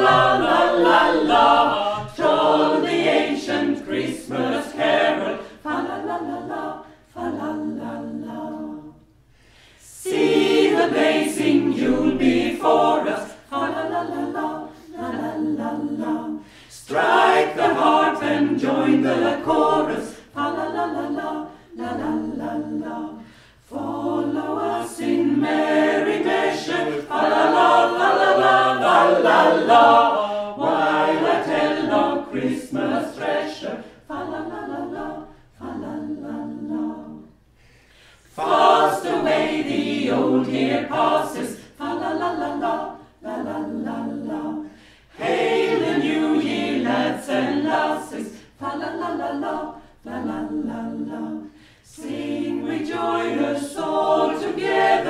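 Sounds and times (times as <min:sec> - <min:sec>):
mixed choir singing: 0:00.0 - 0:55.0.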